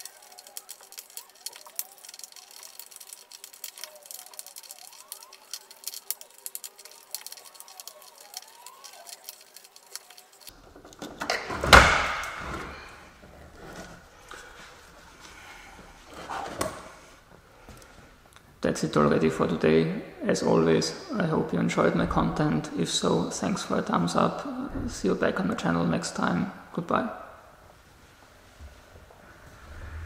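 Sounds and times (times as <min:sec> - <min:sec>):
hand tools clicking: 0:00.0 - 0:11.4.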